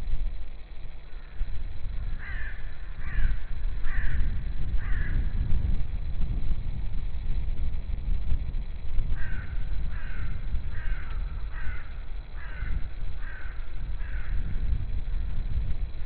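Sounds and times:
low steady rumble: 0.0 - 16.0
crow cawing: 1.1 - 5.4, 9.1 - 14.6.

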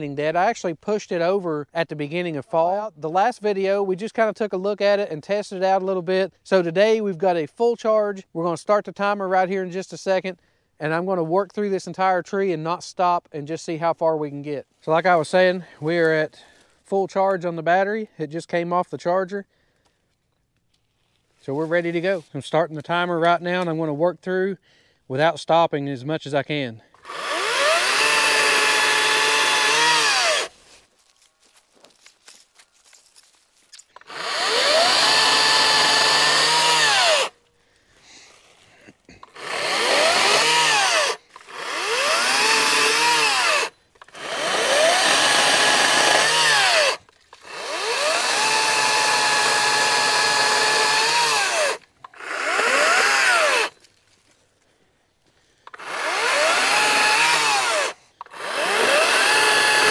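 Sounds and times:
electric chainsaw cutting wood: 27.0 - 30.6, 34.0 - 37.4, 39.2 - 53.8, 55.7 - 59.9.

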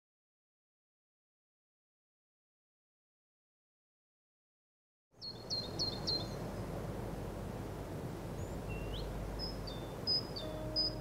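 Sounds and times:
small birds chirping: 5.2 - 6.8, 8.1 - 11.0
low background rumble: 5.2 - 11.0.

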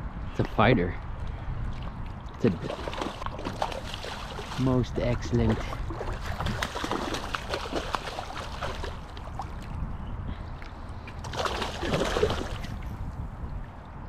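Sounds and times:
water splashing and sloshing: 1.0 - 14.0
fish thrashing at surface: 2.5 - 9.4, 11.2 - 12.8.

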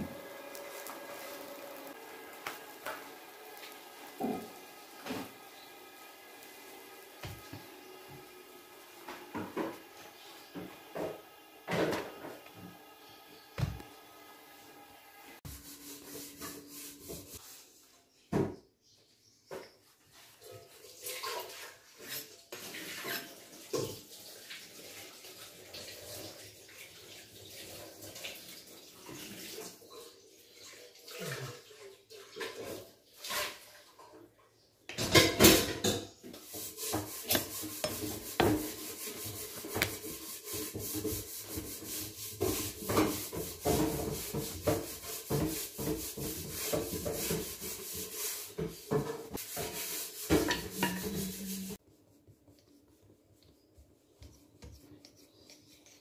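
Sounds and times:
knife slicing pastry sheets: 36.8 - 40.7.

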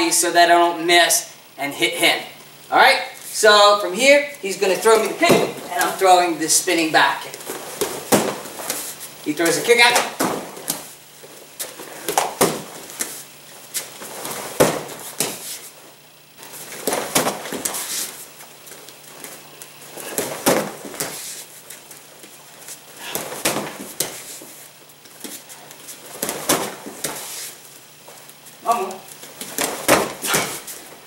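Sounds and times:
kicks thudding on padded shield: 5.1 - 6.0, 7.7 - 10.9, 12.1 - 13.1, 14.3 - 15.6, 16.8 - 18.1, 20.0 - 21.4, 23.0 - 24.4, 26.2 - 27.3, 28.7 - 30.7.

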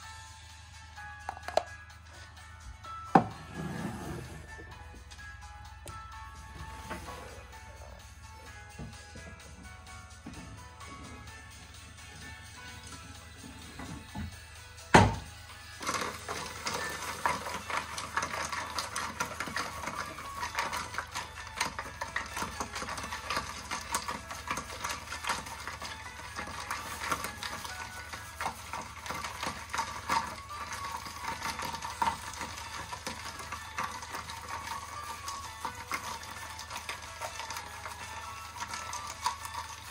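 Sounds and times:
ice cubes clinking in glass: 15.8 - 39.9.

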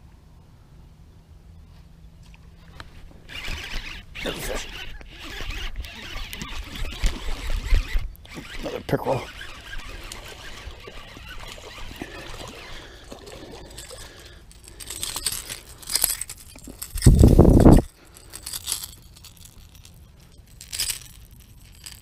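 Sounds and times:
rustling in grass: 9.6 - 22.0.

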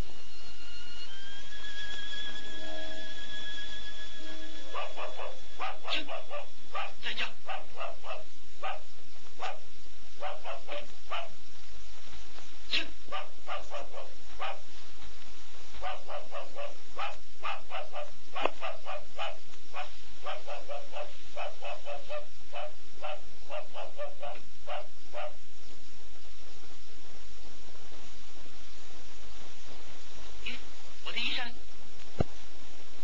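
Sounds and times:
background hiss: 0.0 - 33.0
dog barking: 4.6 - 11.4, 12.7 - 14.7, 15.8 - 25.4.

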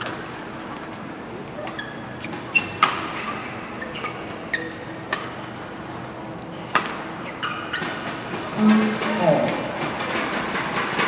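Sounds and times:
shoes squeaking on court: 1.5 - 5.5, 6.8 - 8.1
rackets hitting shuttlecock: 2.3 - 3.5, 5.1 - 5.4, 6.7 - 8.4.

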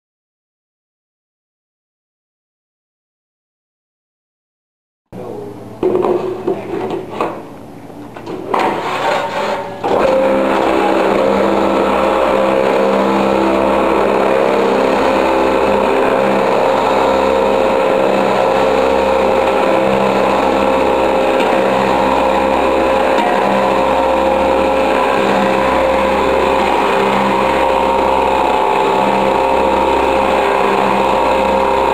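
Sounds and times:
vibrator motor humming: 8.4 - 31.9.

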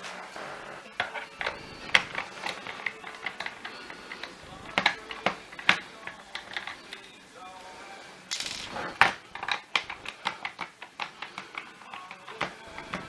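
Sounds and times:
sharp plastic knocks: 8.4 - 13.0
screwdriver clicking in plastic: 9.0 - 13.0.

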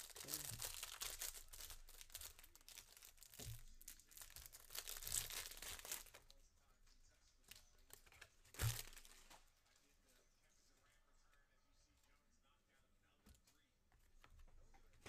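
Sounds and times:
foil pack tearing and crinkling: 0.0 - 6.2, 8.6 - 9.2.

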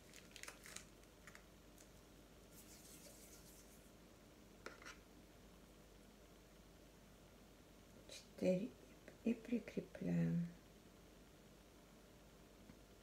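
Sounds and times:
faint clicks and rustles of hands: 0.0 - 3.9.

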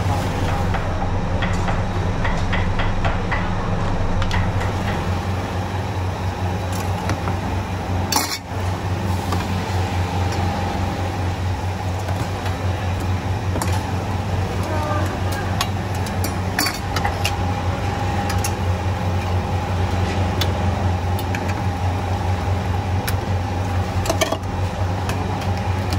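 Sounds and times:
steady low hum: 0.0 - 25.9
porcelain bowls and utensils clinking: 14.6 - 17.4.

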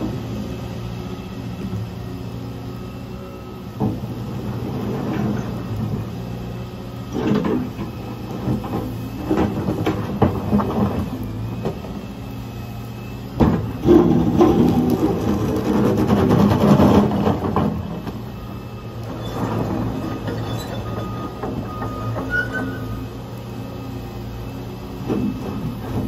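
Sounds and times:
steel bucket scraping asphalt: 4.0 - 6.2, 13.6 - 18.4, 19.0 - 23.2.

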